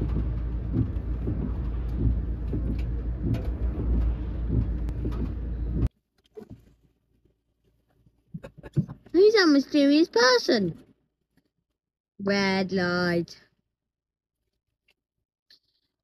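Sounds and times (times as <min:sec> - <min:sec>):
van engine idling: 0:00.0 - 0:05.9.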